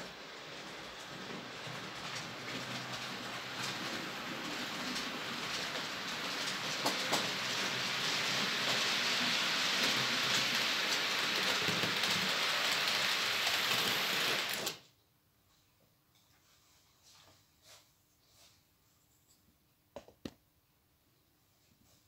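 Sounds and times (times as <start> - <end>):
model train running on track: 0.0 - 14.8.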